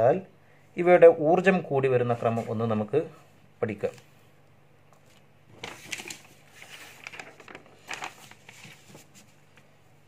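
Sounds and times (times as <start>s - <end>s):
paper page rustling: 5.0s - 9.7s.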